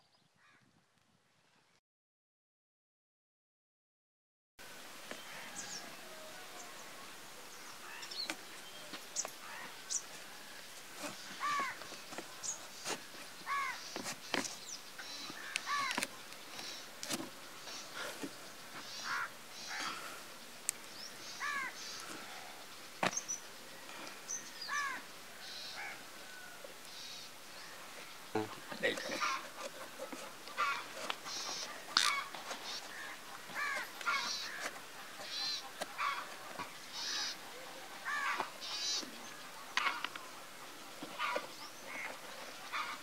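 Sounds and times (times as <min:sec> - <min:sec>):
small birds chirping: 0:05.1 - 0:43.0
crow cawing: 0:11.3 - 0:11.8, 0:13.5 - 0:13.9, 0:15.0 - 0:16.0, 0:18.9 - 0:20.0, 0:21.4 - 0:22.1, 0:24.6 - 0:27.2, 0:28.5 - 0:36.4, 0:37.0 - 0:37.4, 0:38.0 - 0:39.0, 0:41.2 - 0:42.1, 0:42.7 - 0:43.0.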